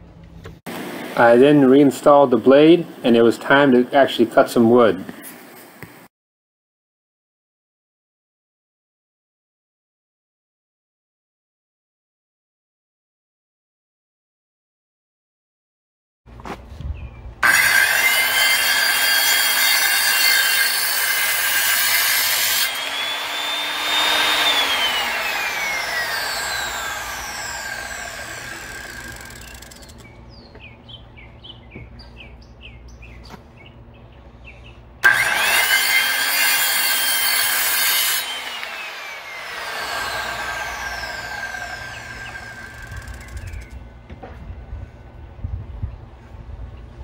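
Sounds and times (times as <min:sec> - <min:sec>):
circular saw cutting wood: 0:17.4 - 0:30.0, 0:35.0 - 0:43.8.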